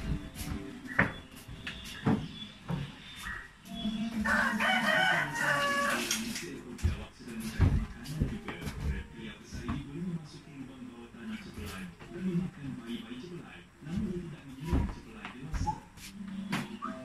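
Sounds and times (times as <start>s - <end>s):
rooster crowing: 4.2s - 6.2s.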